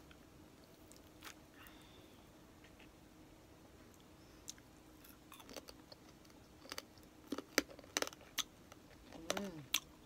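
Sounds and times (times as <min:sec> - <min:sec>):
crunchy chewing: 0:04.4 - 0:10.0.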